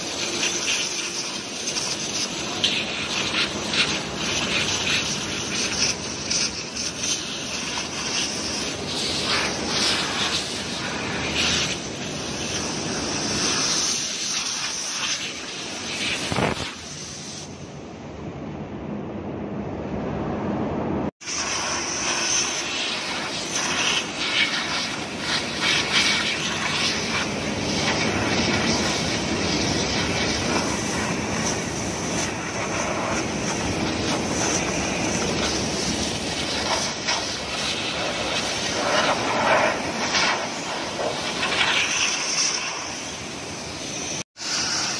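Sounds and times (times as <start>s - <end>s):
high-pressure hose jet hissing: 0.0s - 17.7s, 21.2s - 44.9s.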